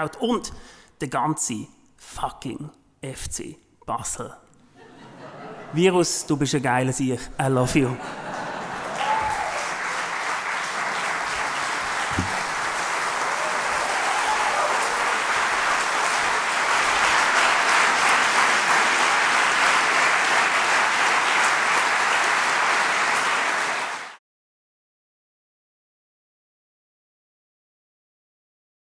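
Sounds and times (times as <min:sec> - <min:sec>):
audience applauding: 0:08.2 - 0:24.2.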